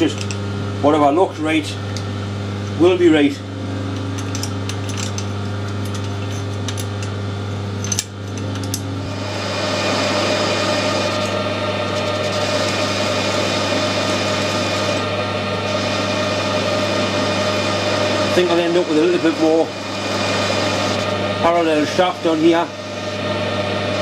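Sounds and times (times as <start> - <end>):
lathe motor hum: 0.0 - 24.0
hissy metal cutting noise: 9.1 - 24.0.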